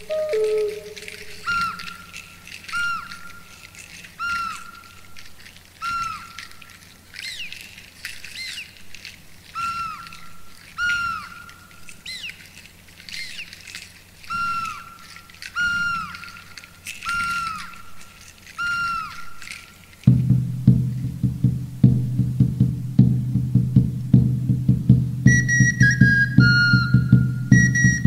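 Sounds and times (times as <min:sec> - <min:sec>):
whistled bird-like calls: 0:00.0 - 0:03.5, 0:14.3 - 0:16.4, 0:25.3 - 0:28.0.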